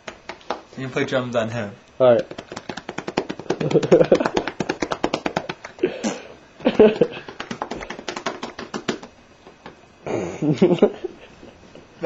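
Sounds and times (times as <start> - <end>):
hands slapping cat's belly: 0.0 - 0.7, 2.2 - 5.8, 6.7 - 9.8.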